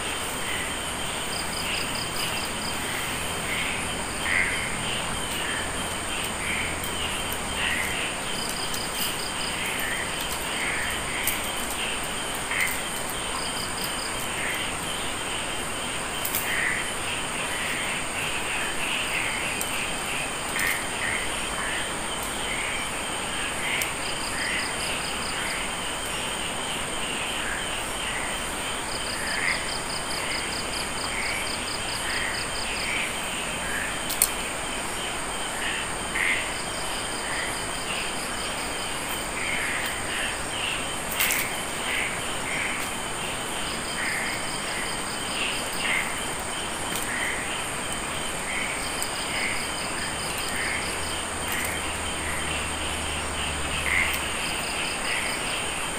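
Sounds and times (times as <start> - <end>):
pulsed insect trill: 0.0 - 55.9
insects shrilling: 35.7 - 55.6
short insect chirps: 36.2 - 55.6.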